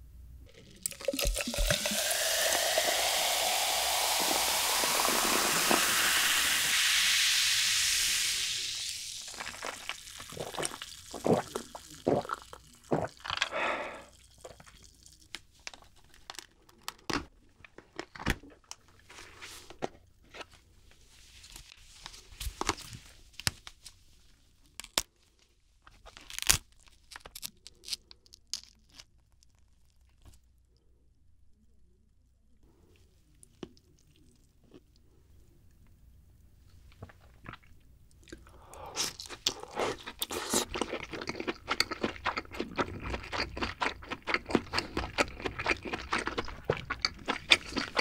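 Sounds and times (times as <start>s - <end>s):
sipping and swallowing water: 0.4s - 15.2s, 37.0s - 48.0s
crab shell cracking: 26.1s - 29.7s
meat tearing: 26.1s - 30.3s.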